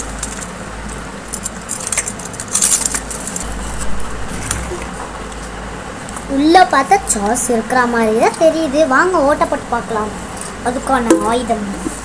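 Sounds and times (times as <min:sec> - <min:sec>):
crisps rattling out of a tube: 0:00.0 - 0:04.0.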